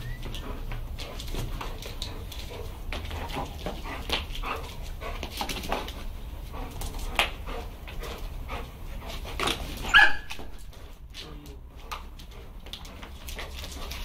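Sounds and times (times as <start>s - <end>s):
dogs barking and whimpering: 9.5s - 10.7s.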